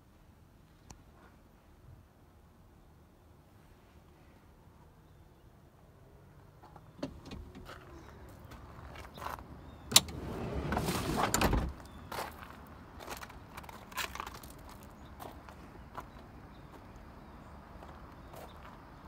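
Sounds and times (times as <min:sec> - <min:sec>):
footsteps on gravel: 0:07.6 - 0:09.8, 0:11.8 - 0:17.0, 0:17.8 - 0:18.8
rustling and crunching: 0:10.3 - 0:15.4.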